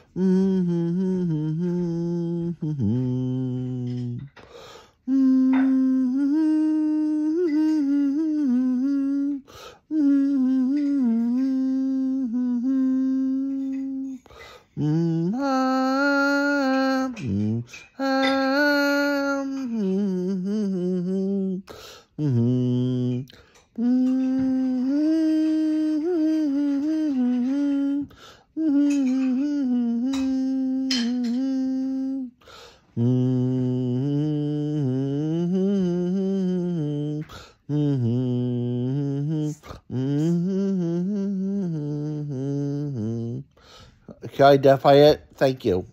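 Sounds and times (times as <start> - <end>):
man humming: 0.0 - 45.8
breath in: 32.4 - 32.9, 43.6 - 44.1.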